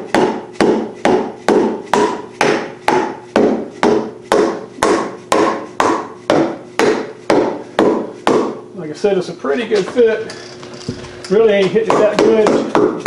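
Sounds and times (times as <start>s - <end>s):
mallet striking metal: 0.0s - 8.6s.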